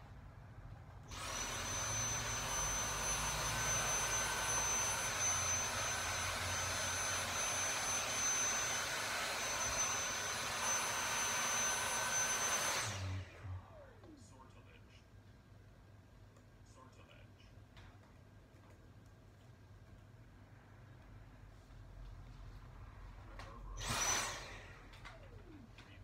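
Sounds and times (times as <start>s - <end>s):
vacuum cleaner running: 1.0s - 14.1s, 23.2s - 26.0s.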